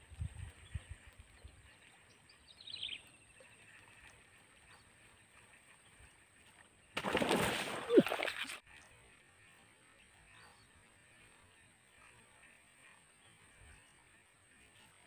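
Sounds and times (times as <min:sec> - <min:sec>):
bird chirp: 0:00.6 - 0:06.1, 0:09.9 - 0:14.2
loud splash in water: 0:07.0 - 0:08.5.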